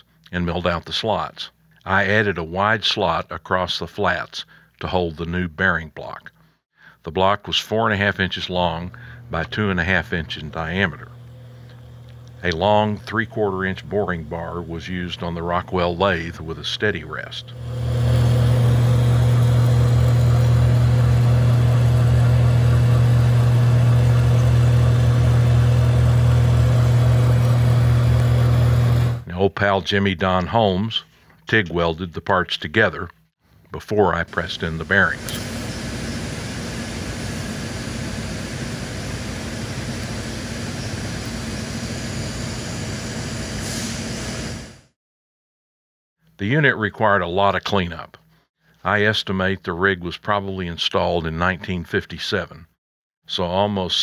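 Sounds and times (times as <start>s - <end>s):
metal lathe humming: 11.0s - 16.2s, 17.4s - 29.2s, 34.5s - 43.6s.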